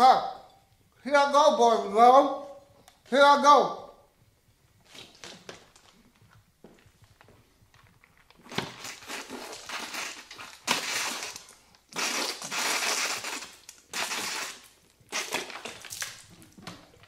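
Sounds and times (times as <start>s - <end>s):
plastic bottle crinkling: 4.8s - 17.0s.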